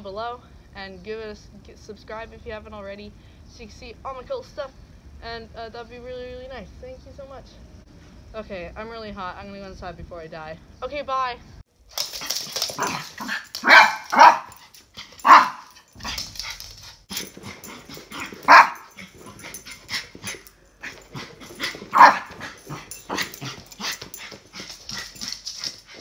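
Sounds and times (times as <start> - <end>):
small dog barking: 12.8 - 14.6, 15.2 - 16.2, 17.4 - 21.0, 21.6 - 23.9.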